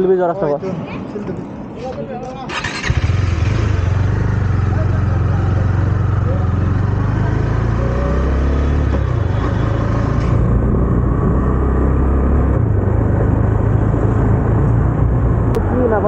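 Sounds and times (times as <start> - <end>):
wind and road noise: 0.0 - 16.0
motorcycle engine running: 2.6 - 11.2.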